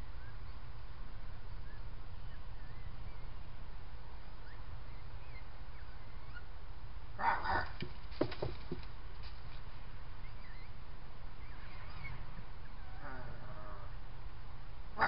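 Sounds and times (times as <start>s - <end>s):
fox kits calling: 11.4s - 13.9s.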